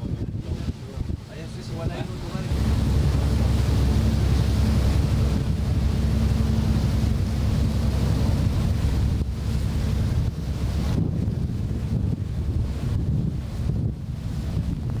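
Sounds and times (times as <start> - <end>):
boat engine drone: 0.0 - 15.0
water rushing past hull: 0.0 - 15.0
wind buffeting microphone: 0.0 - 15.0.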